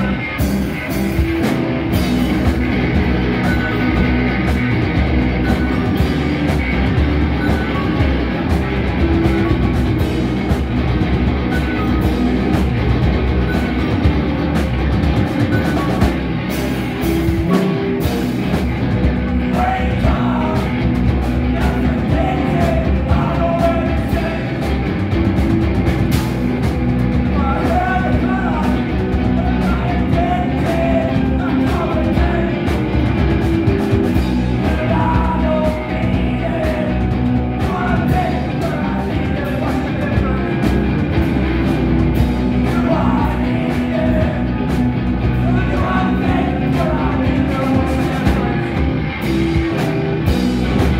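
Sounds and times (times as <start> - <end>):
drum kit: 0.0 - 50.9
electric guitars: 0.0 - 50.9
person singing lead vocals: 19.2 - 25.0, 27.2 - 33.4, 34.2 - 50.9.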